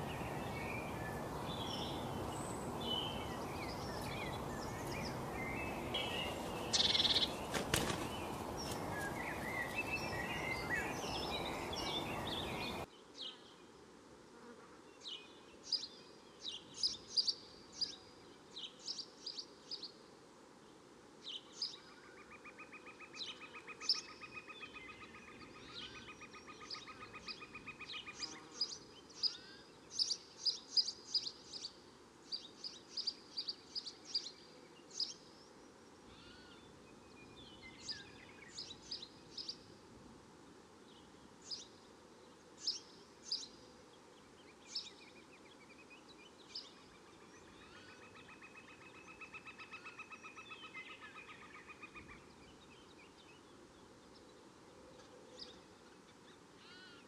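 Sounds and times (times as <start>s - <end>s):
bird chirps and calls: 0.0s - 12.9s.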